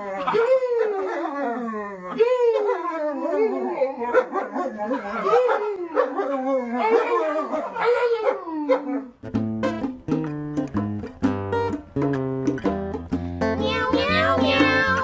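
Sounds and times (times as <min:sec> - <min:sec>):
dog howling: 0:00.0 - 0:09.2
plucked guitar music: 0:09.2 - 0:15.0.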